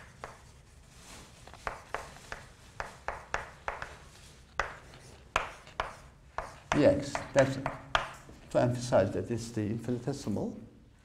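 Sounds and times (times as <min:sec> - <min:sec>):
chalk tapping on a blackboard: 0:00.0 - 0:00.6, 0:01.4 - 0:08.4.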